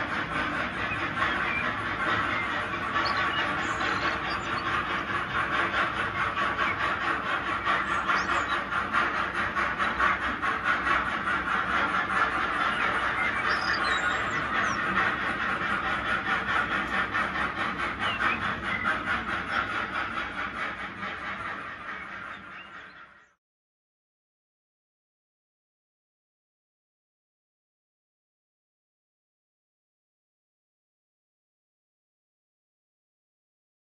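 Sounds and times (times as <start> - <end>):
model train wheels rattling: 0.0 - 22.9.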